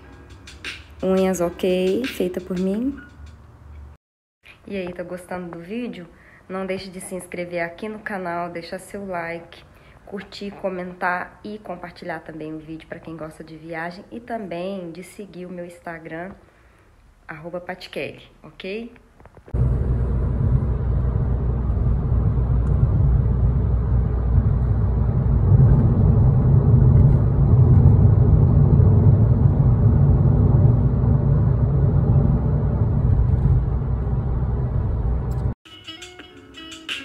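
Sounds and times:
car interior road rumble: 19.6s - 35.6s.

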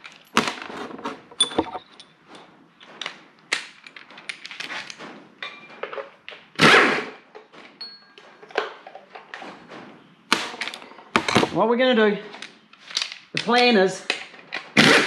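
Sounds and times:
metal clatter: 0.0s - 6.5s
hand tools clinking on metal: 1.2s - 2.2s, 7.8s - 9.1s.

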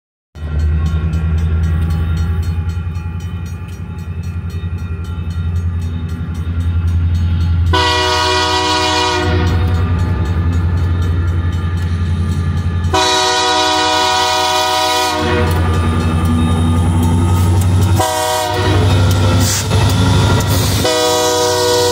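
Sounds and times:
train low rumble: 0.4s - 21.9s
locomotive air horn blasts: 7.7s - 9.9s, 12.9s - 15.8s, 17.9s - 19.6s, 20.6s - 21.9s.

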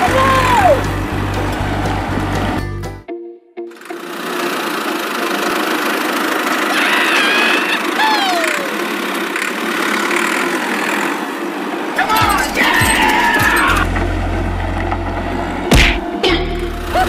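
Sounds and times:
small motor running: 3.7s - 13.9s.

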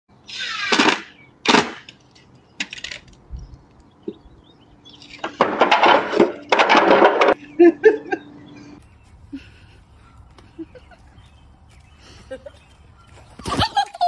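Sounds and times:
wooden boards knocking and clattering: 5.2s - 7.4s.

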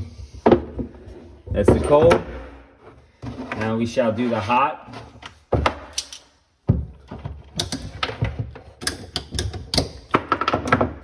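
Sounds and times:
tools and fittings clacking: 4.9s - 11.0s.

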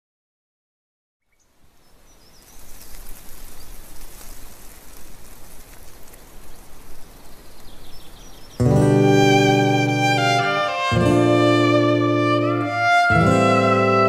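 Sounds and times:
steady rain falling: 1.5s - 11.2s.

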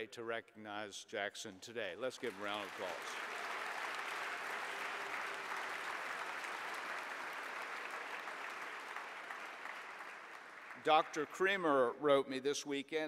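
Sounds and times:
audience applauding: 2.2s - 11.7s.

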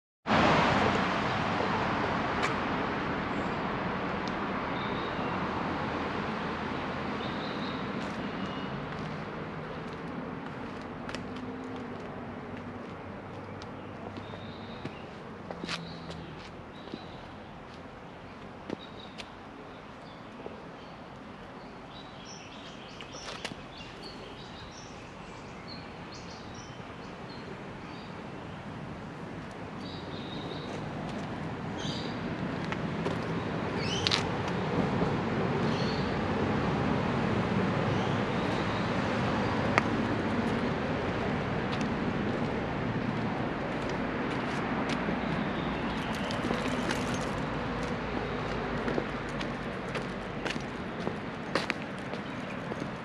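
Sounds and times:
outdoor background noise: 0.2s - 53.0s
road traffic: 0.2s - 53.0s
small birds chirping: 12.8s - 28.6s, 29.4s - 34.2s, 49.3s - 53.0s.

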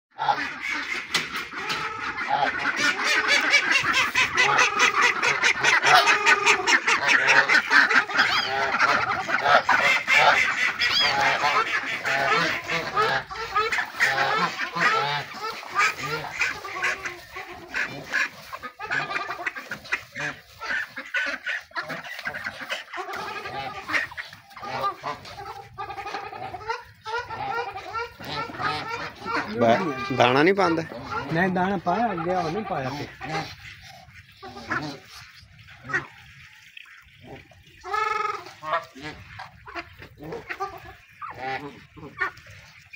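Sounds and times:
geese honking: 0.1s - 42.9s.

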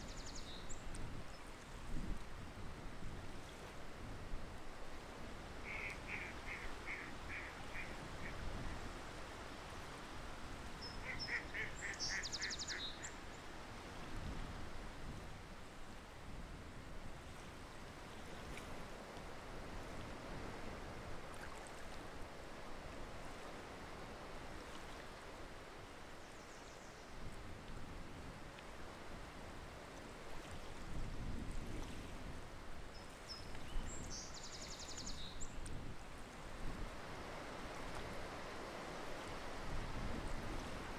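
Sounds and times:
waterfowl calling: 5.6s - 8.4s, 11.0s - 13.2s.

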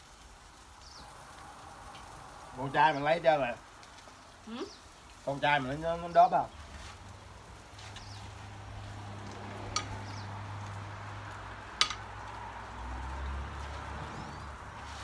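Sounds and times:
meat sizzling on grill: 0.0s - 15.0s
metal tongs knocking grill: 9.2s - 10.8s, 11.6s - 12.3s.

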